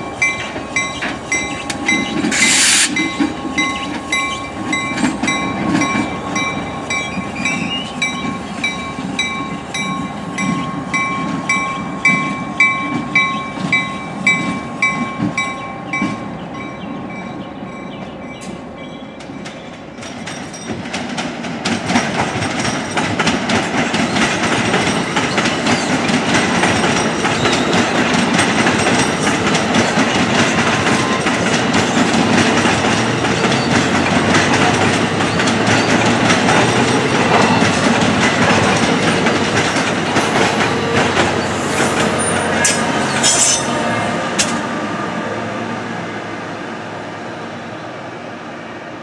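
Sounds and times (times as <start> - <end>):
train wheels clattering and rumbling: 0.0 - 45.0
high wheel squeals: 0.2 - 5.0, 33.1 - 37.9, 40.6 - 44.0.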